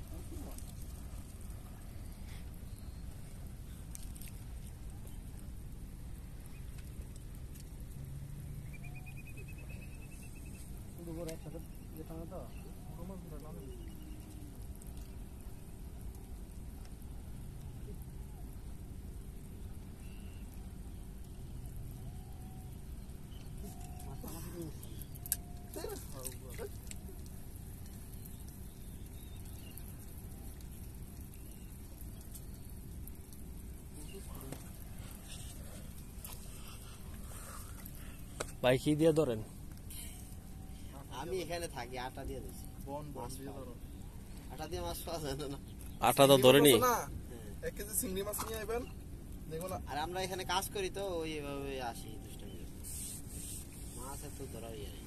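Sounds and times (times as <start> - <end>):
faint hiss: 0.0 - 55.0
low outdoor rumble: 0.0 - 55.0.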